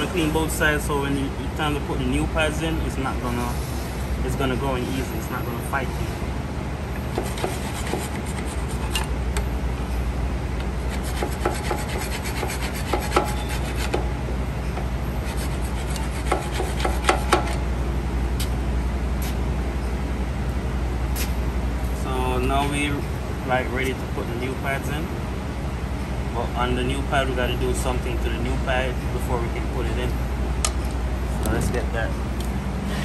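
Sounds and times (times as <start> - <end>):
screwdriver scraping metal: 7.2 - 9.1, 10.9 - 14.0, 15.3 - 17.6.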